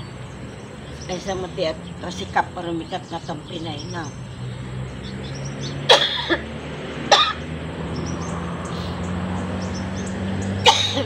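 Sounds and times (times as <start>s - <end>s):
person coughing: 5.9s - 6.4s, 7.1s - 7.4s, 10.7s - 11.0s.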